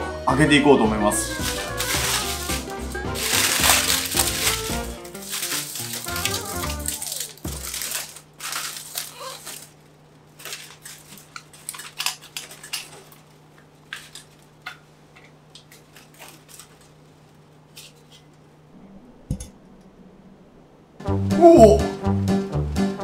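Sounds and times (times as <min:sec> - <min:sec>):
metal can clinking and scraping: 0:01.3 - 0:09.6.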